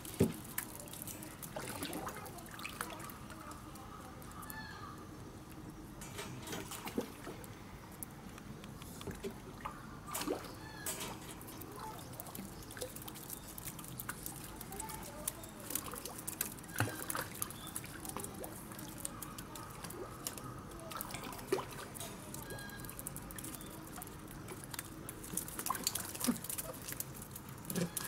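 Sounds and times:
penguins pattering on wet concrete: 0.0 - 7.6, 10.2 - 28.0
water trickling and lapping: 0.0 - 28.0
faint chirps: 22.3 - 24.2.

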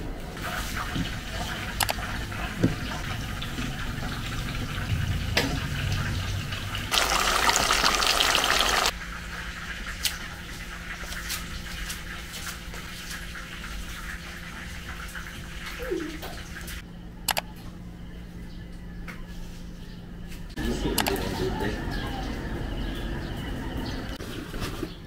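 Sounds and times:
water running from a tap: 0.4 - 16.8
electric fan hum: 1.2 - 9.0.

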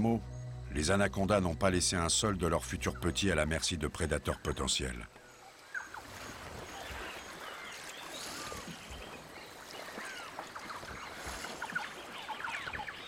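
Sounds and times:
running water: 3.9 - 13.0.

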